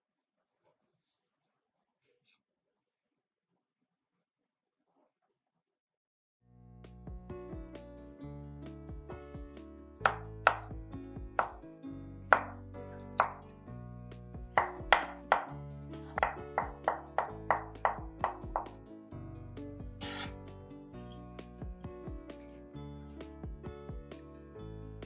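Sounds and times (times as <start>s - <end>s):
background music: 6.5s - 25.0s
knife tapping on cutting board: 10.1s - 10.8s, 11.4s - 11.6s, 12.4s - 12.6s, 14.6s - 15.6s, 16.2s - 18.8s.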